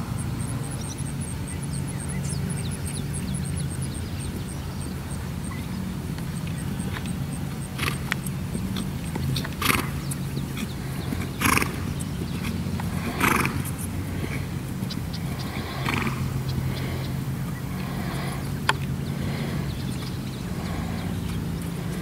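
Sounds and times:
low hum: 0.0 - 22.0
horse blowing through nostrils: 9.6 - 19.8, 20.5 - 21.2.

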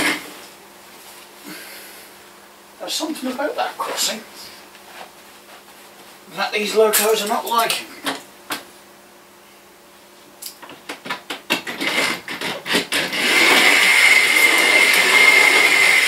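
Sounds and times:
small electric motor whining: 12.7 - 16.0.

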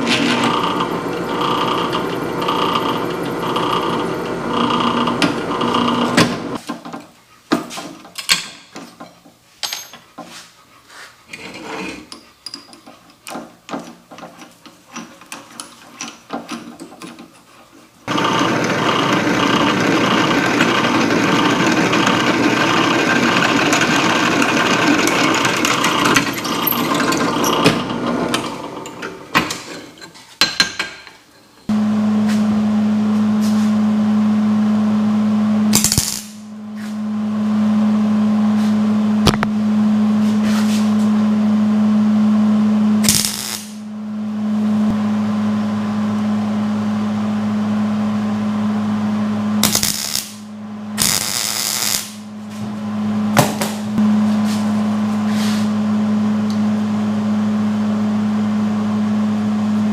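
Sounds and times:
drill press drilling metal: 0.0 - 6.6, 18.1 - 29.8
vise clicks and knocks: 23.2 - 31.2.

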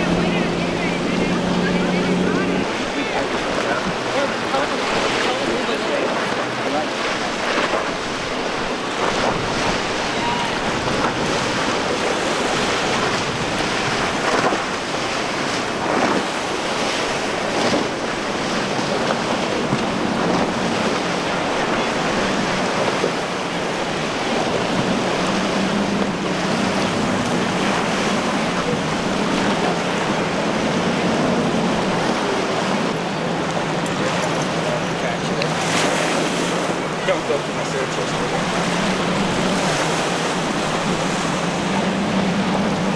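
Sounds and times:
outboard engine drone: 0.0 - 42.9
waves washing: 0.0 - 42.9
wind buffeting microphone: 0.0 - 42.9.

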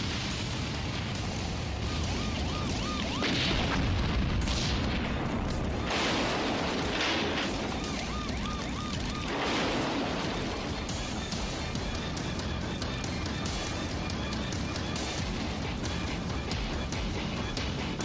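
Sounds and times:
booming surges: 0.0 - 13.8
heavy rain rushing: 0.0 - 15.5.

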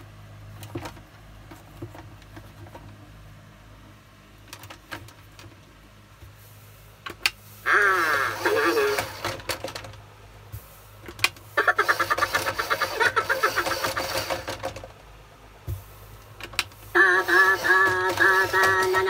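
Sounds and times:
toy clicks: 7.2 - 9.9, 11.1 - 14.9, 16.4 - 19.0
toy motor and gears whirring: 7.6 - 9.8, 11.2 - 14.9, 16.5 - 19.0.

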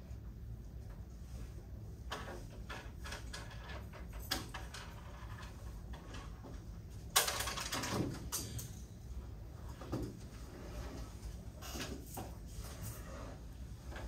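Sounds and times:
steady low hum: 0.0 - 14.0
clicks and knocks from desks: 2.0 - 8.9
rustling scrape: 10.2 - 14.0.

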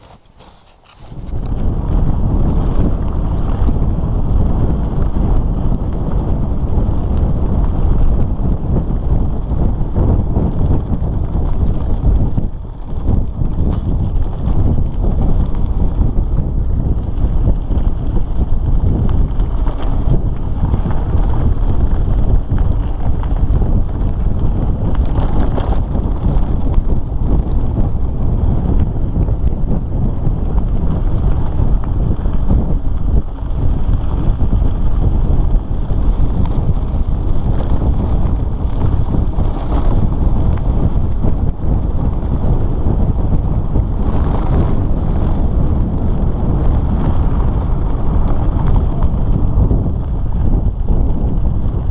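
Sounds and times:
bicycle rattling on gravel: 0.0 - 51.9
wind buffeting microphone: 0.0 - 51.9.

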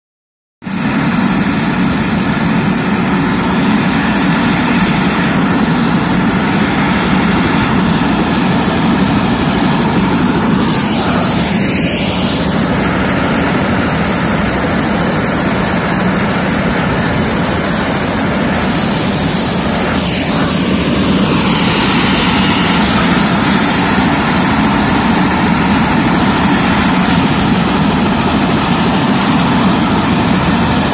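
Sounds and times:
helicopter rotor and engine: 0.6 - 30.9
high turbine whine: 0.6 - 30.9.

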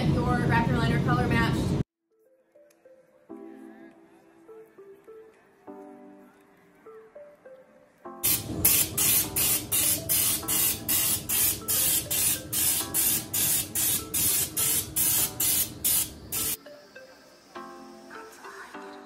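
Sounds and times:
spray gun hissing bursts: 8.2 - 16.6.

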